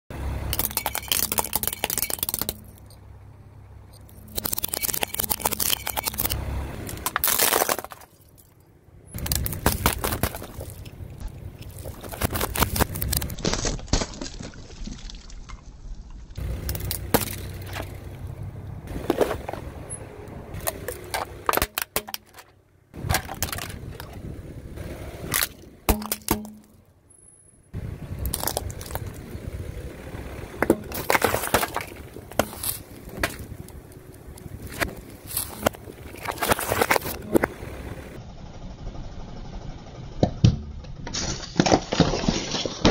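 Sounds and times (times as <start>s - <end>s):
car tyre crushing plastic: 0.4s - 3.0s, 3.9s - 18.2s, 18.9s - 26.9s, 28.1s - 29.5s, 30.5s - 37.9s, 40.2s - 42.9s
drink bottles being squashed: 0.5s - 2.9s, 4.1s - 8.4s, 9.2s - 11.0s, 11.6s - 15.2s, 16.6s - 18.0s, 20.5s - 24.3s, 25.3s - 26.8s, 30.6s - 33.8s.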